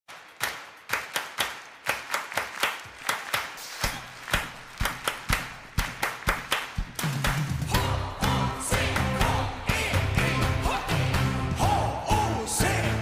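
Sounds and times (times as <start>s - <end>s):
hand claps echoing: 0.1s - 9.4s.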